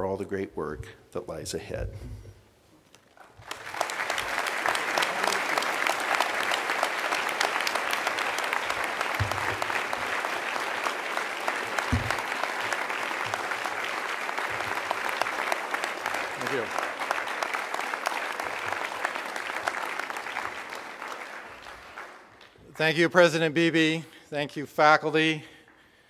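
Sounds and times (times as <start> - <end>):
audience applauding: 3.2 - 22.6.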